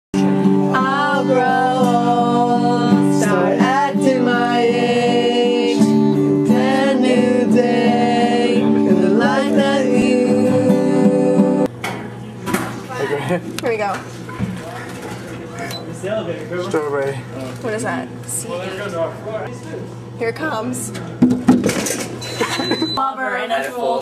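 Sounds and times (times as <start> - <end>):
guitar: 0.2 - 18.4
person singing: 0.7 - 11.7.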